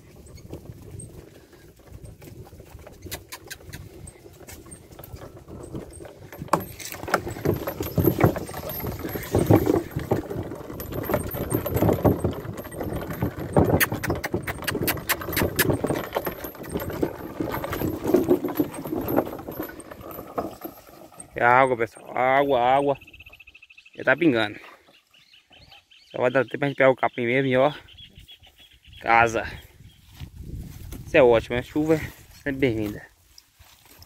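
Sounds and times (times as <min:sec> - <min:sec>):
hooves clip-clopping on dirt: 0:00.0 - 0:23.3, 0:30.0 - 0:34.0
wooden cart knocking and rattling: 0:00.0 - 0:23.3
harness chains jingling: 0:00.1 - 0:24.6, 0:31.9 - 0:34.0.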